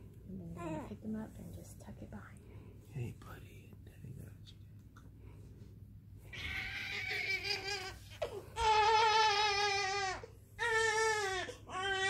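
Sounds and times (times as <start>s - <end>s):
newborn baby crying: 6.3s - 12.0s.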